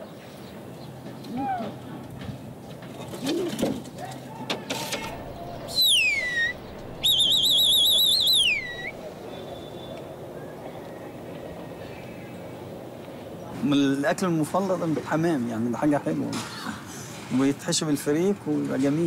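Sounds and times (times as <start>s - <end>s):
man's two-finger whistle: 5.7s - 8.9s.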